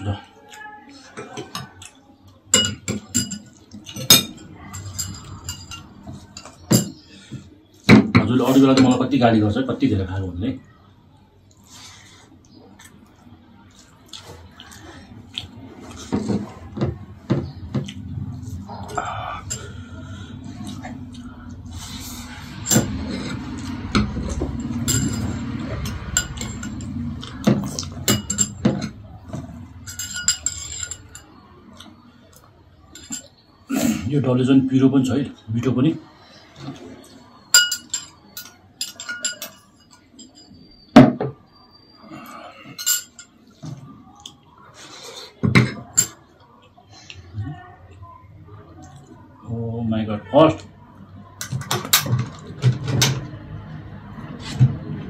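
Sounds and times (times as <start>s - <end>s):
spoons clinking on ceramic plates: 1.2s - 7.4s, 21.8s - 33.5s, 37.3s - 40.8s, 42.1s - 43.5s.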